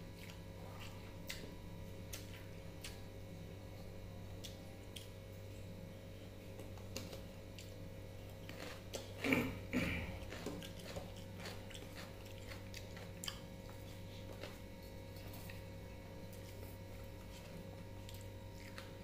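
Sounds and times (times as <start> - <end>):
steady low hum: 0.0 - 19.0
mouth chewing: 6.6 - 15.7, 16.3 - 19.0.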